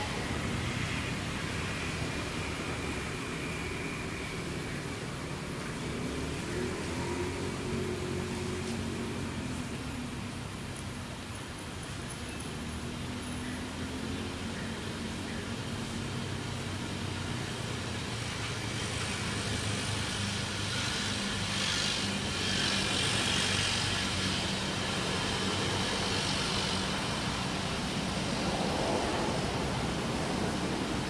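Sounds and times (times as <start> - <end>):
vehicle passing: 0.0 - 10.6
traffic engine hum: 0.0 - 31.0.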